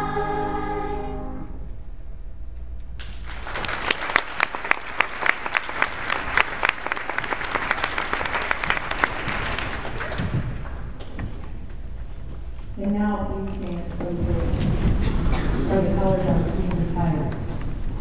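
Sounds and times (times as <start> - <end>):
choir singing: 0.0 - 1.7
audience clapping: 3.0 - 11.6.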